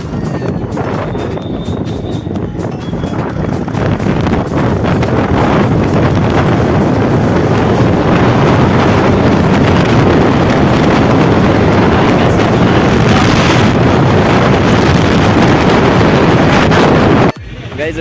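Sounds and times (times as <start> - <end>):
motorcycle engine and road noise: 0.0 - 18.0
wind rush on microphone: 0.0 - 18.0.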